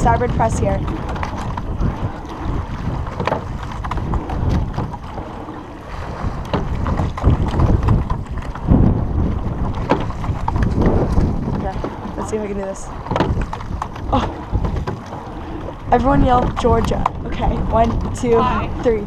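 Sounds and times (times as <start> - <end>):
water rushing along hull: 0.0 - 19.0
wind buffeting microphone: 0.0 - 19.0
sharp knocks: 13.1 - 13.9.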